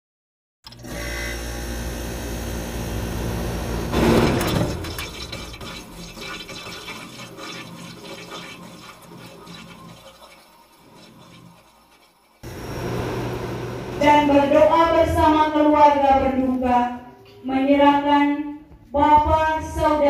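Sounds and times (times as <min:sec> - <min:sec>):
low hum: 0:12.4 - 0:14.8.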